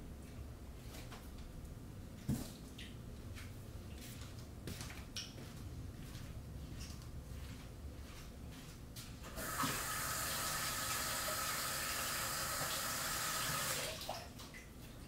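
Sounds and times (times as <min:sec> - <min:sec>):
water running: 0:09.3 - 0:14.7.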